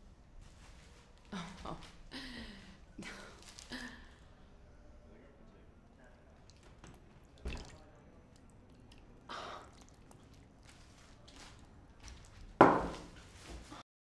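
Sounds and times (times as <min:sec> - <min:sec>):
person gasping: 0:01.4 - 0:04.4
wet squishing and dripping: 0:06.0 - 0:12.6.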